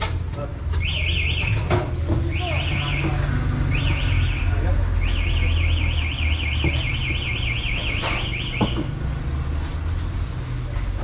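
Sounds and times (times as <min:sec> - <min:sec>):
car alarm warbling: 0:00.8 - 0:01.7, 0:02.3 - 0:08.9.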